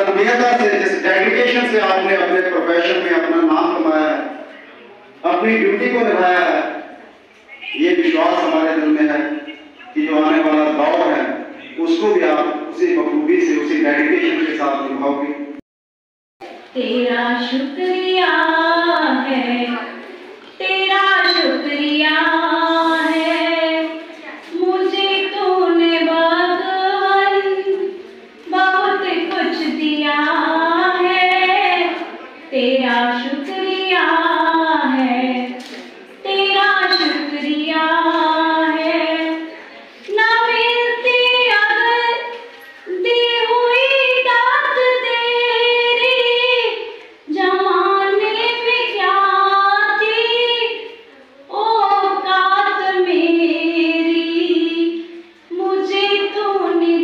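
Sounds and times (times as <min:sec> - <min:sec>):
woman singing into a microphone: 0:16.7 - 0:57.0.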